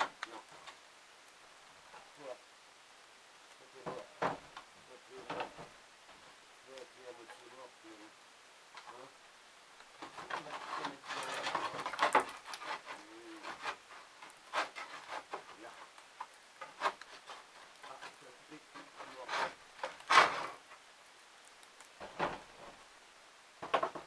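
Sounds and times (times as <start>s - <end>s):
knocks and scrapes: 0.0s - 0.9s, 3.7s - 6.4s, 9.8s - 20.9s, 21.9s - 22.9s, 23.6s - 24.0s.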